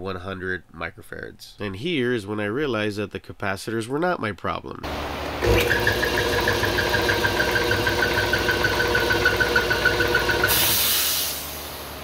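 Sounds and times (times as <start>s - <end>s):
air compressor belt squealing: 5.4s - 11.5s
air hissing out: 10.4s - 11.9s.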